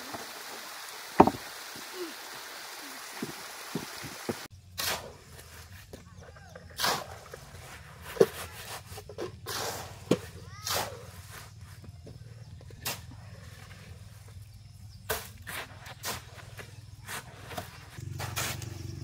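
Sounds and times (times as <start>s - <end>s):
stream water running: 0.0s - 4.5s
plank dropping thud: 1.2s - 1.5s
shovels scraping sand: 4.4s - 12.0s, 12.8s - 14.4s, 15.0s - 19.0s.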